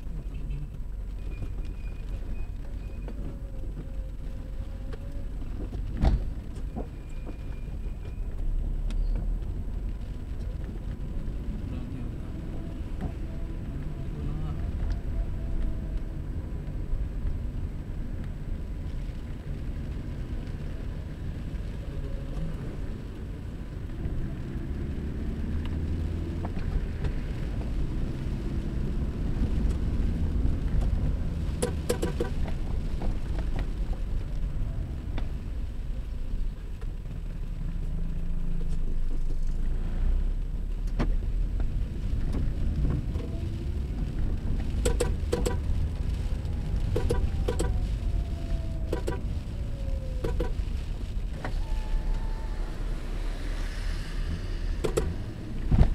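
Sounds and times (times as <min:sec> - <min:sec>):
car engine and road noise: 0:00.0 - 0:55.9
cluster of clicks: 0:44.7 - 0:45.7.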